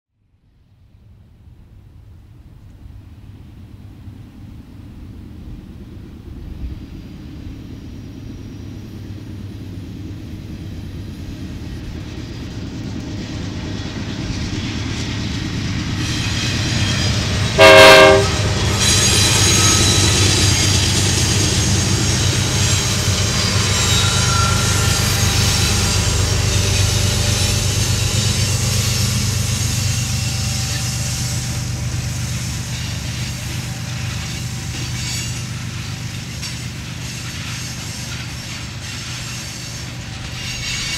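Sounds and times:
diesel locomotive engines: 0:00.7 - 0:40.9
rail car wheel noise: 0:00.7 - 0:40.9
high-pitched wheel squeals: 0:16.0 - 0:27.6
train horn blast: 0:17.5 - 0:19.0.

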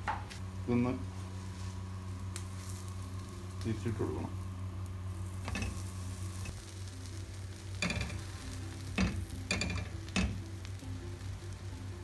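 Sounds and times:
low hum: 0:00.4 - 0:12.0
bread sizzling on a griddle: 0:00.5 - 0:12.0
spatula scraping a griddle: 0:05.3 - 0:06.5, 0:07.8 - 0:10.4.

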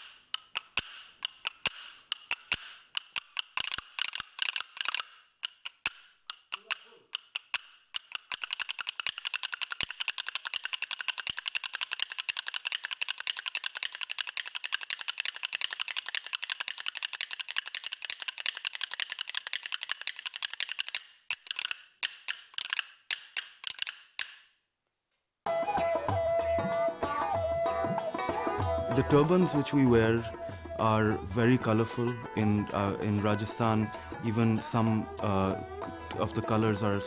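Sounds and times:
percussion clappers clicking: 0:00.0 - 0:24.5, 0:25.5 - 0:37.0
music: 0:25.5 - 0:37.0.

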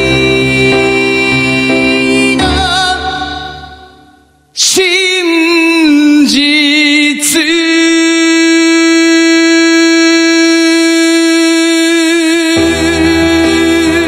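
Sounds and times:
piano: 0:00.0 - 0:07.9, 0:11.8 - 0:14.0
man singing pop-rock ballad: 0:00.0 - 0:14.0.

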